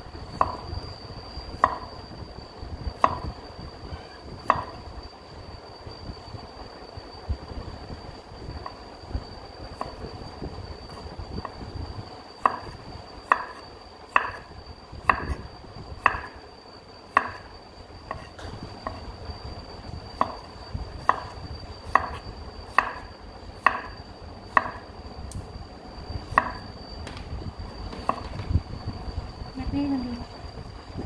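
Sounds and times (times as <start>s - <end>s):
knife slicing garlic: 12.4s - 14.4s, 18.1s - 19.0s, 20.2s - 24.8s.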